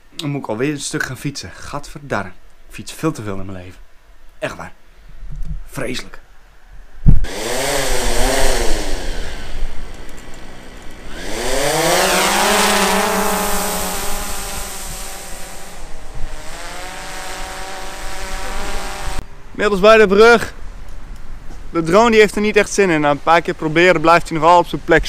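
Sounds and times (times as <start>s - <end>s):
drone propellers whining: 7.2s - 19.2s.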